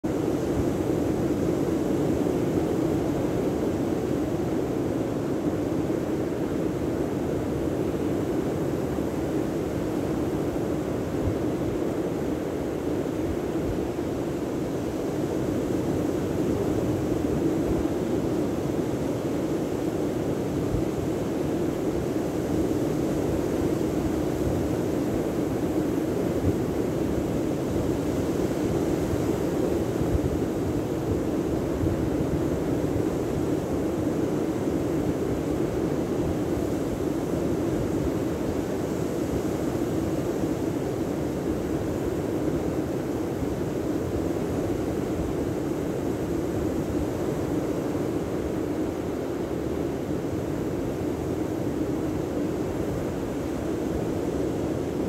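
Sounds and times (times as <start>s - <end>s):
wind: 0.0s - 55.0s.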